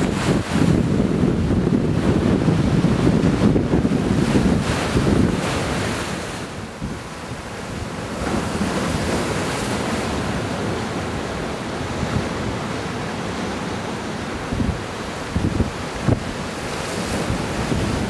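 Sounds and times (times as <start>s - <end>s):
wind buffeting microphone: 0.0s - 11.0s, 14.4s - 18.0s
waves washing against breakwater: 0.0s - 18.0s.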